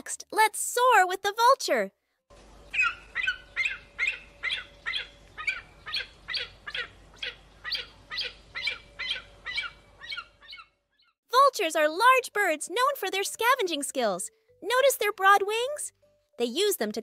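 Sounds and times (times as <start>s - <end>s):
bird giving high falling cries: 2.7s - 10.7s.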